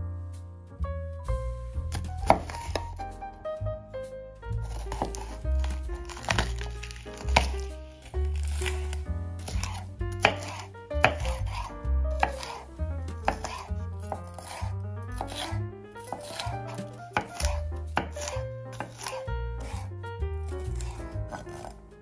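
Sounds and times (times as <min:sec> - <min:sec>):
background music: 0:00.0 - 0:22.0
knife chopping on wooden board: 0:01.9 - 0:02.9, 0:04.6 - 0:19.9, 0:20.5 - 0:21.7.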